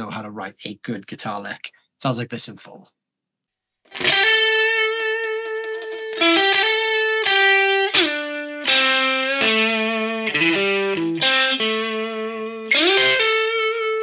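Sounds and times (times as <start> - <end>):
overdriven electric guitar blues lead: 3.9 - 14.0.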